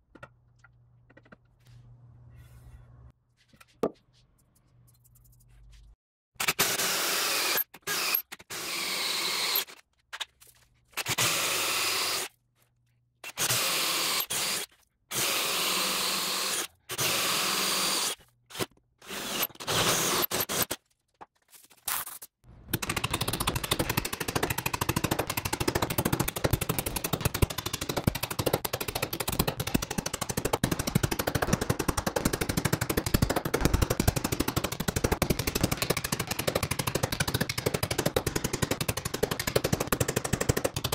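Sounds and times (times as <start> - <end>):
power drill boring into wood: 6.6 - 9.7, 11.1 - 12.3, 13.3 - 20.6.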